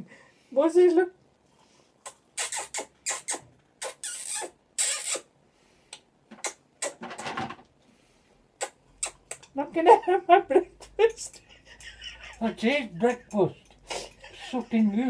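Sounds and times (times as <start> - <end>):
parrot kissing smacks: 2.0 - 5.3, 5.9 - 7.0, 8.6 - 9.5.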